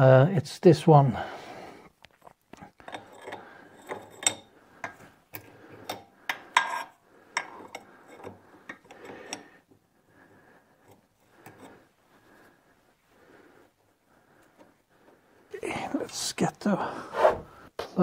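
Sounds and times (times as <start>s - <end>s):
wrench clinking on metal fitting: 2.9s - 4.5s.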